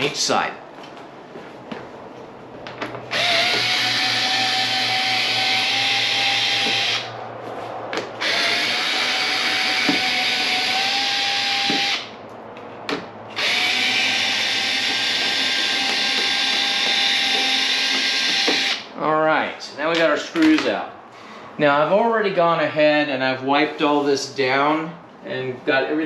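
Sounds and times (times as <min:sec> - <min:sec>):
cordless screw gun whining: 0:03.1 - 0:07.1, 0:08.2 - 0:12.1, 0:13.3 - 0:18.9.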